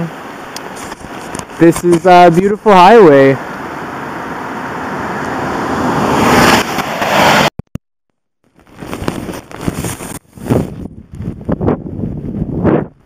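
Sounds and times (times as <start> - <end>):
tyres hissing on wet road: 0.0 - 7.5
wind buffeting microphone: 8.7 - 13.0.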